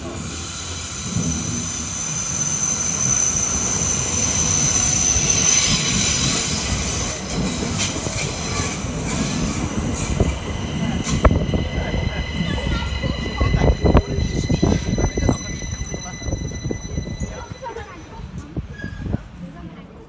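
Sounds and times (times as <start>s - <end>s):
electric train rumbling: 0.0s - 20.0s
high thin squeal: 0.4s - 6.5s, 11.3s - 19.2s.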